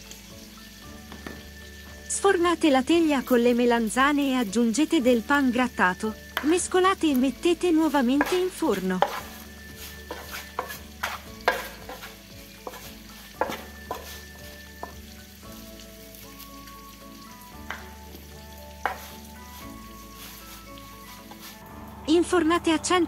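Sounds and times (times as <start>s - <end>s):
wooden spatula scraping metal pan: 7.7s - 15.1s, 17.6s - 21.7s.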